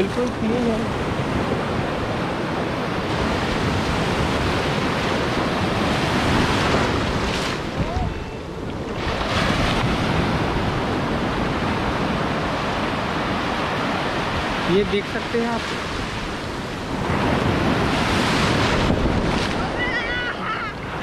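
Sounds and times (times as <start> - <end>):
surf breaking on beach: 0.0 - 21.0
wind on microphone: 0.0 - 21.0.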